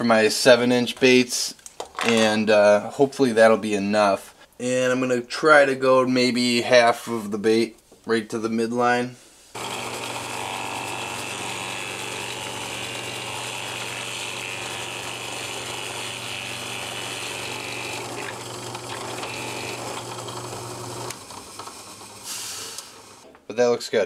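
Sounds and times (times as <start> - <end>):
drill bit cutting wood: 9.6 - 23.2
drill press motor hum: 9.6 - 23.2.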